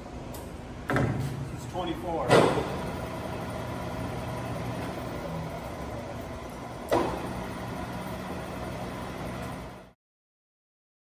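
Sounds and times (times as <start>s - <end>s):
lathe motor humming: 2.7s - 10.0s.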